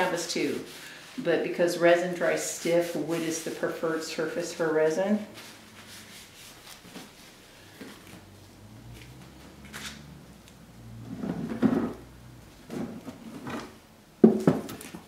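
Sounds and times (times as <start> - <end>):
knocks and rubbing: 10.8 - 15.0.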